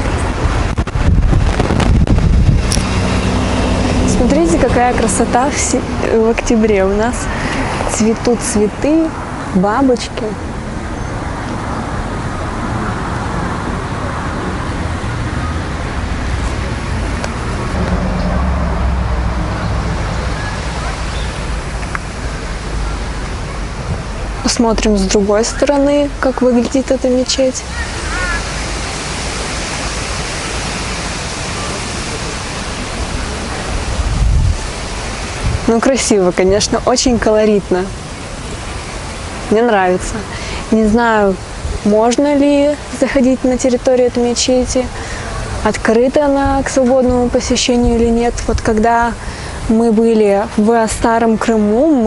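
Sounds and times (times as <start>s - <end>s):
outdoor background hiss: 0.0s - 52.0s
road traffic noise: 0.0s - 52.0s
low rumble: 15.3s - 24.4s.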